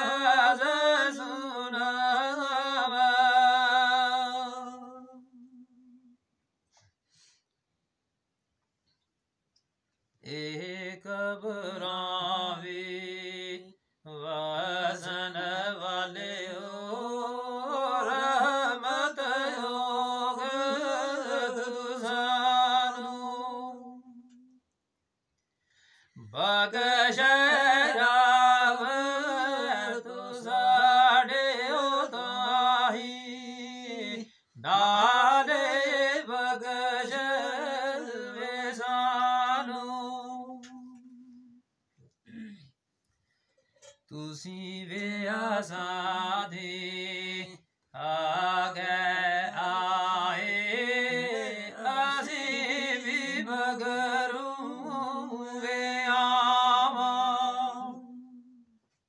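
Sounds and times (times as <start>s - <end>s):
man chanting devotional verse: 10.2s - 24.2s, 26.2s - 41.2s, 44.1s - 58.2s.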